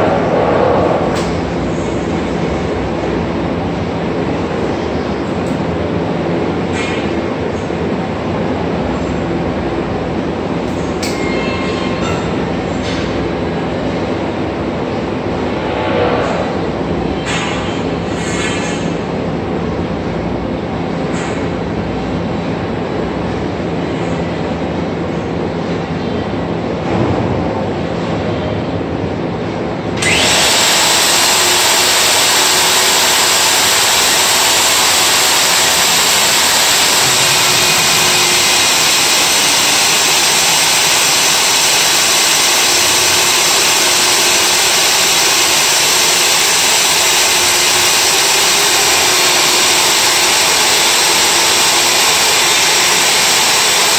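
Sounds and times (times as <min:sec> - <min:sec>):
core drill drilling concrete: 0:30.0 - 0:53.9.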